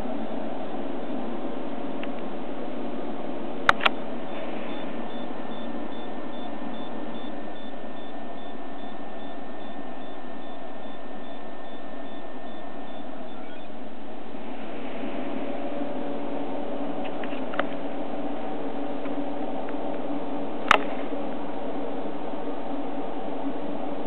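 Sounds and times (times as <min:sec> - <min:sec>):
faint high whine: 0:00.0 - 0:24.0
faint high beep: 0:04.3 - 0:13.7.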